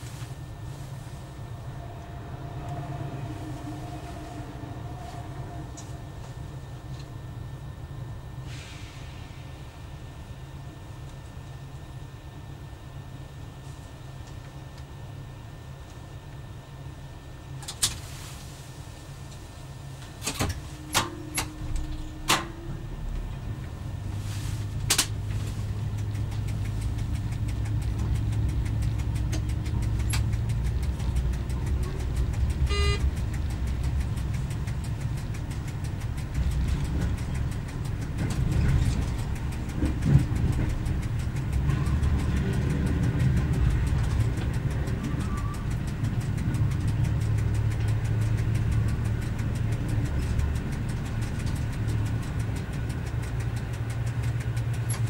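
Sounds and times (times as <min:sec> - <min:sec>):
railcar diesel engine running: 0:00.0 - 0:55.0
short beep: 0:32.7 - 0:33.0.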